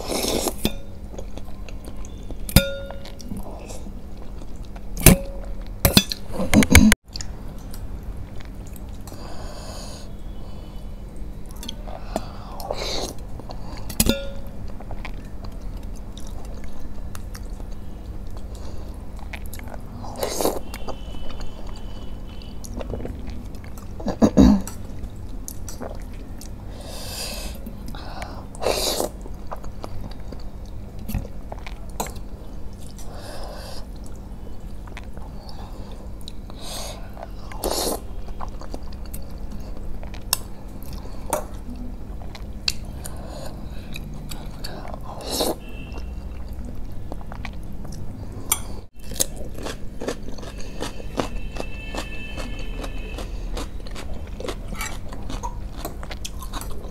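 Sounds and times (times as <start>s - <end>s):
slurping and chewing noodles: 25.5s - 32.2s, 49.0s - 56.9s.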